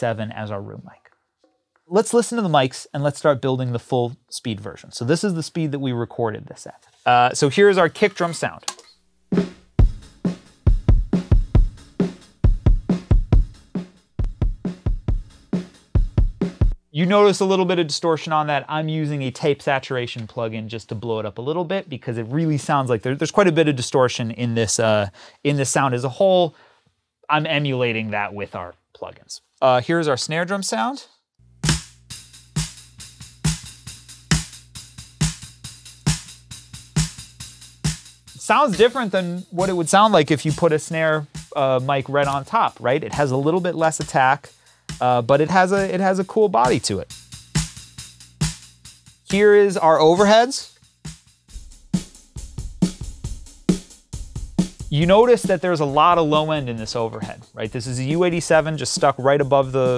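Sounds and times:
snare drum beat: 0:09.3 - 0:16.8, 0:31.6 - 0:42.6, 0:43.8 - 0:49.6, 0:50.2 - 0:59.9
kick drum thuds: 0:09.4 - 0:16.8.

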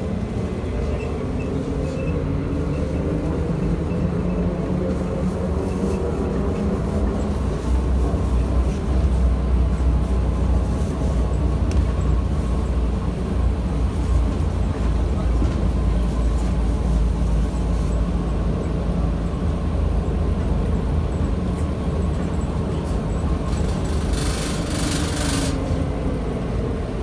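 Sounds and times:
vehicle body rumbling: 0:00.0 - 0:27.0.

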